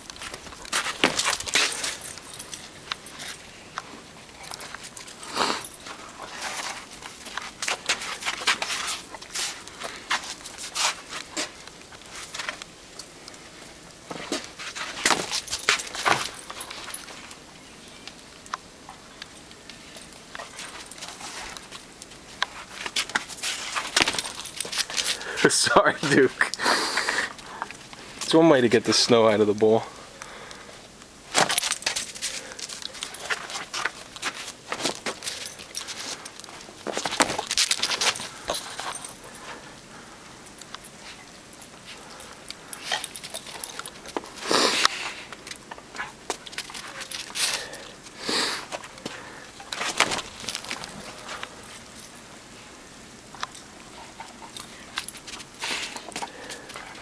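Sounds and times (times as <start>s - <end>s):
footsteps crunching in snow: 0.1s - 2.8s, 4.7s - 12.6s.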